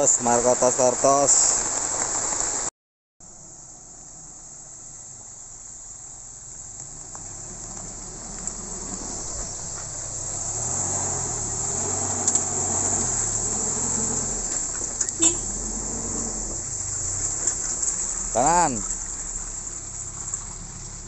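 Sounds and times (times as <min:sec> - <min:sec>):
insects buzzing: 0:03.2 - 0:21.0
off-road vehicle engine revving: 0:06.8 - 0:21.0.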